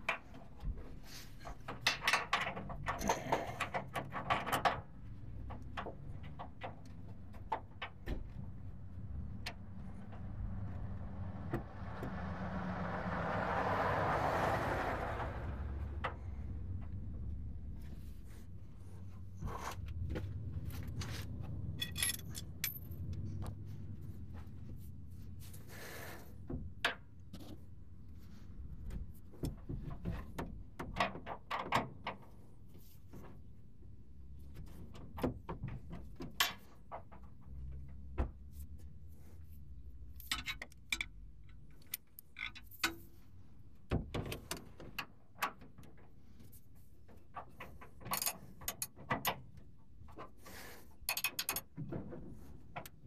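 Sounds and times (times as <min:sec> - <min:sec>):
low rumble: 0:08.4 - 0:19.0
hand tools clinking on metal: 0:21.8 - 0:22.9.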